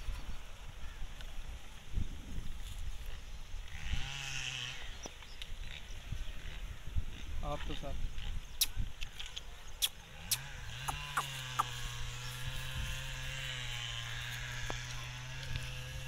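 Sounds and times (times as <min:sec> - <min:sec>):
small motor humming: 0:09.9 - 0:16.0.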